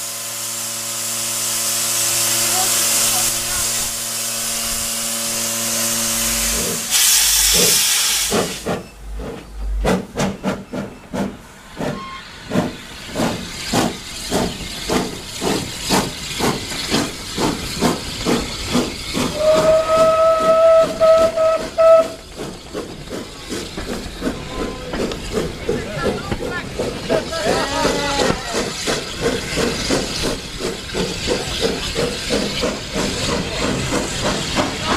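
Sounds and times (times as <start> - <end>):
steam locomotive hissing: 0.0 - 34.9
locomotive exhaust chuffs: 4.6 - 34.9
steam whistle: 19.3 - 22.2.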